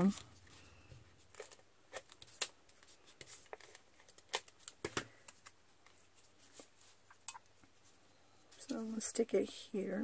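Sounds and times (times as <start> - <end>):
paper handling: 0.0 - 7.0.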